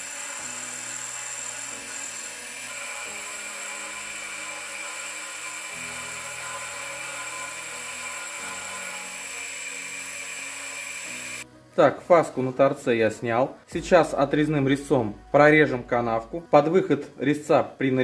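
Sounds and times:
metal lathe high whine: 0.0 - 11.4.

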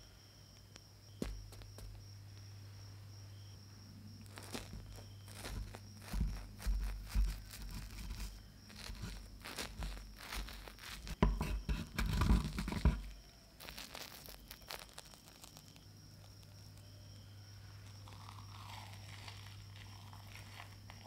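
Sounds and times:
omelette crackling under chopsticks: 4.2 - 16.9, 17.8 - 21.0.

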